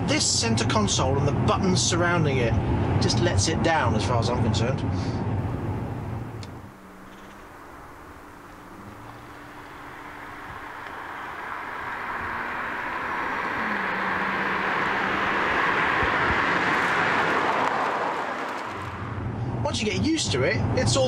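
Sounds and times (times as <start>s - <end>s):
car driving past: 5.0s - 19.6s.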